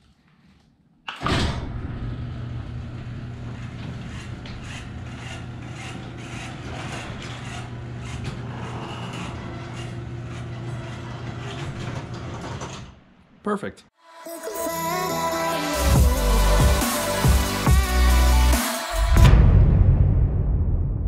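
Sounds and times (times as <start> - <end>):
garage door opener clunk: 1.1 - 13.2
garage door opener humming: 1.1 - 13.2.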